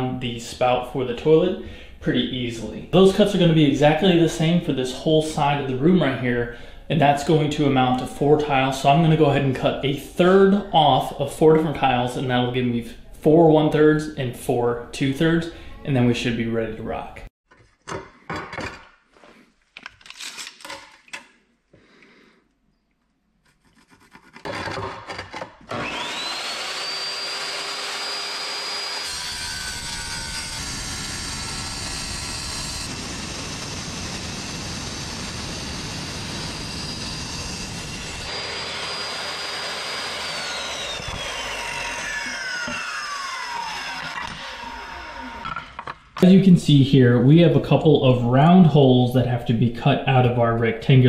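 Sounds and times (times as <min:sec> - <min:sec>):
wet tile saw whining and grinding: 0:24.3 - 0:45.9.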